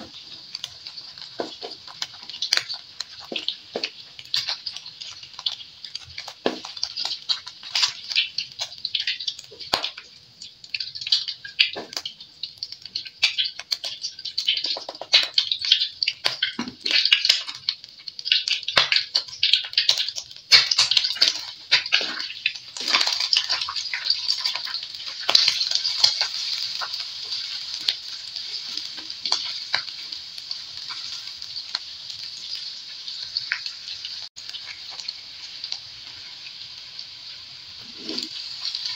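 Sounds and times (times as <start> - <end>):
food sizzling in hot oil: 0.0 - 38.9
utensils scraping a wok: 37.8 - 38.9.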